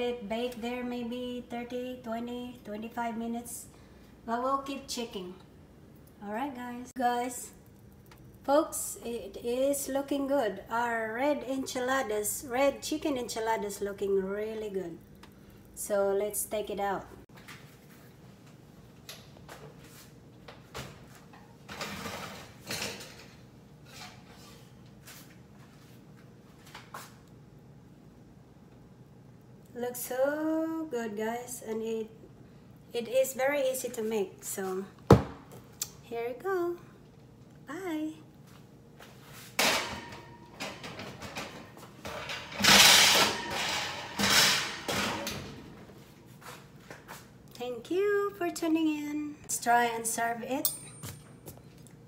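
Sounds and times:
baking dish scraping on rack: 42.1 - 45.3.

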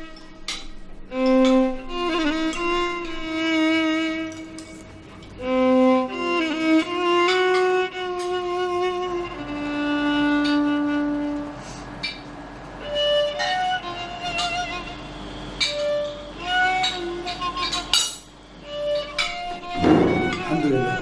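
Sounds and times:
slow violin melody: 0.0 - 11.7, 12.8 - 18.0, 18.6 - 21.0.

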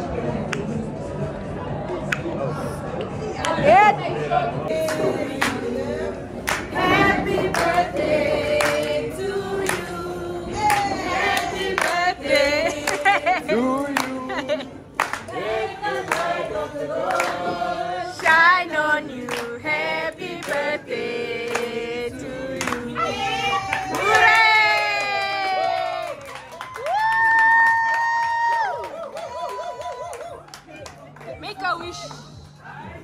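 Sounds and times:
group singing a celebration song: 4.6 - 24.6
hand-clapping in time: 6.4 - 9.0, 15.0 - 16.3, 20.3 - 20.8.

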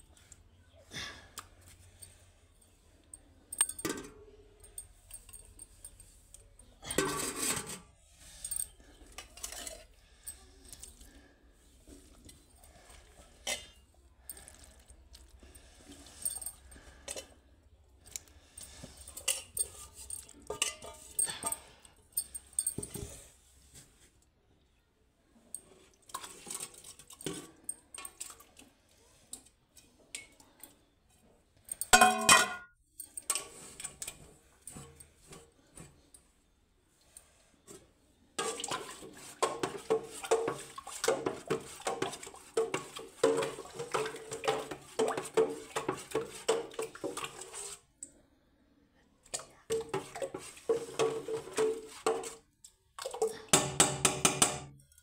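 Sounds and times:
pots and lids clinking: 6.8 - 7.9, 19.1 - 23.1, 31.7 - 35.4, 38.4 - 47.6
steel utensils clattering: 19.1 - 22.9, 31.7 - 35.0.

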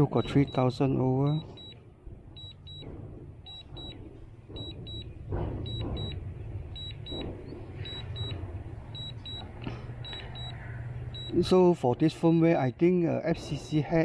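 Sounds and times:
remote controller double beeps: 0.0 - 1.8, 3.5 - 4.0, 6.8 - 8.4, 9.0 - 11.5
steady low rumble: 1.3 - 11.4.

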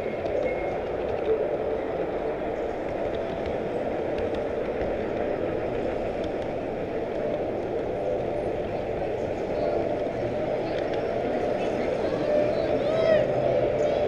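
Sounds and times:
model train wheels rumbling on rail: 0.0 - 14.0
faint clicks: 2.6 - 11.8.

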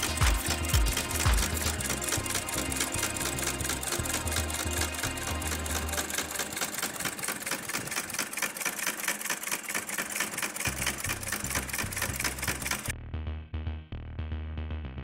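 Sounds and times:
music with bass beat: 0.0 - 6.0, 12.9 - 15.0
sewing machine clattering: 0.0 - 12.9.

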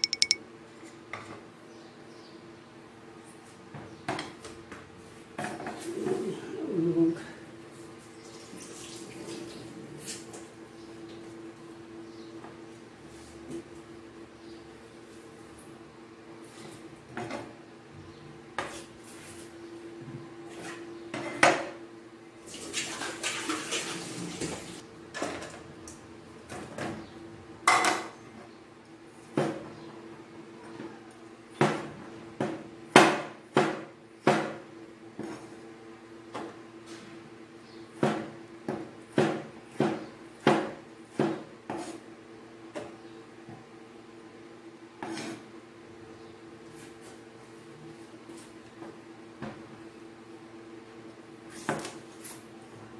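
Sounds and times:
knife chopping on plastic board: 38.0 - 42.0
knife scraping: 41.7 - 42.0, 45.0 - 45.5.

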